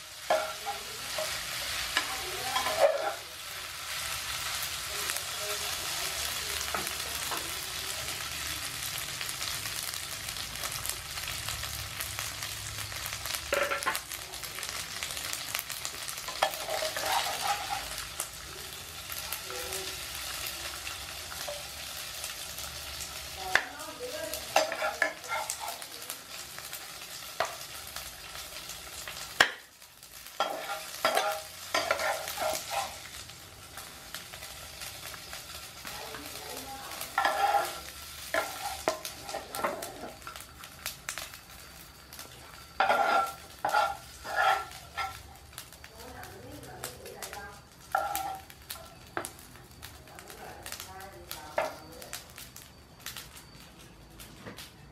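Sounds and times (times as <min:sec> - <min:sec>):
noodles sizzling in a frying pan: 0:00.0 - 0:54.9
metal spatula scraping a pan: 0:00.2 - 0:03.3, 0:16.2 - 0:18.2, 0:24.3 - 0:25.9, 0:30.4 - 0:33.1, 0:36.2 - 0:40.6, 0:42.5 - 0:45.4, 0:47.8 - 0:48.6.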